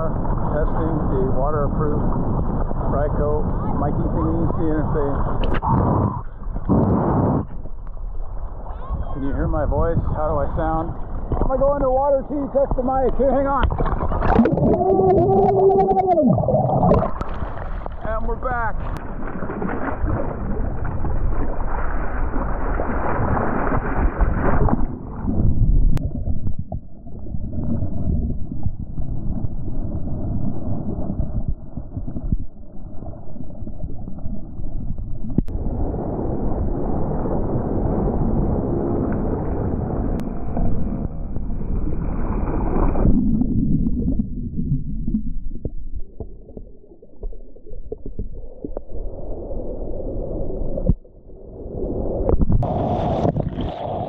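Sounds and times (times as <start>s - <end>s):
muffled water sloshing: 9.8s - 35.5s
small wave washing in: 18.8s - 25.5s.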